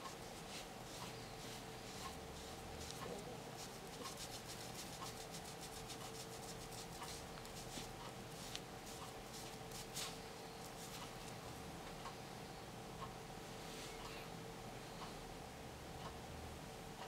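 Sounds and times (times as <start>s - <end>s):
hand rubbing: 0.0s - 11.2s
faint steady hum: 0.0s - 17.0s.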